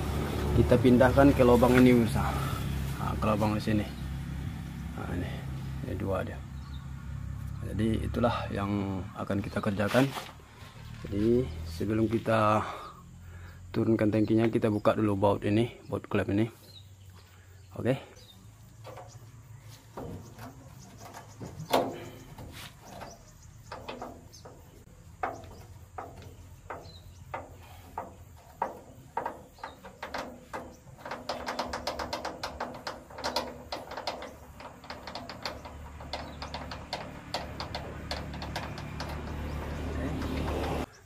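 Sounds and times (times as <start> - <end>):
wrench clicking on metal bolts: 21.0 - 40.9.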